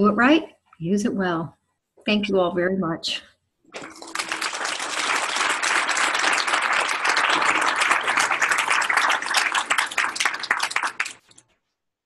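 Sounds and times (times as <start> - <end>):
audience applauding: 3.7 - 11.4.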